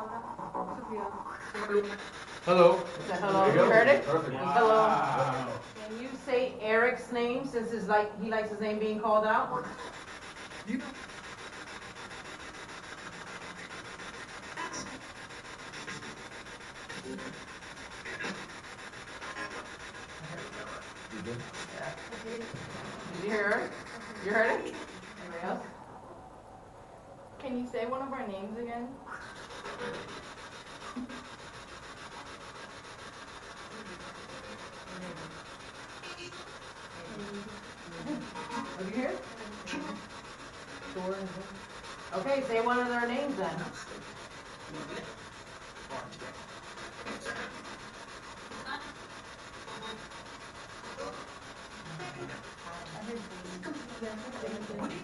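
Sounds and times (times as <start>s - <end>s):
garbled voice fragments: 0.0s - 6.1s
choppy radio static: 0.0s - 6.4s, 9.2s - 25.6s, 33.5s - 55.0s
radio static stutter: 16.9s - 25.6s.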